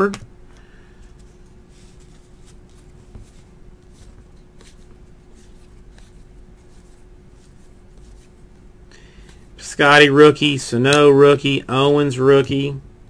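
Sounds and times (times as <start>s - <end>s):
steady low hum: 0.0s - 13.0s
cards rustling and flicking: 0.9s - 8.6s.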